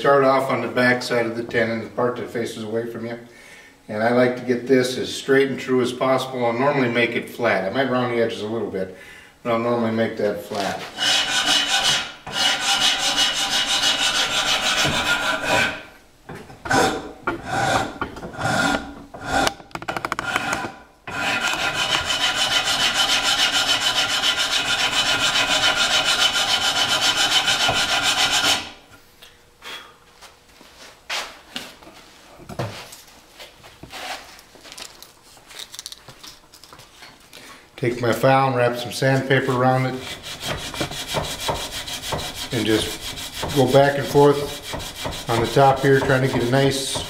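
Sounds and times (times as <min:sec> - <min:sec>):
file rasping wood: 0:11.0 - 0:15.9, 0:16.7 - 0:28.8, 0:39.9 - 0:47.0.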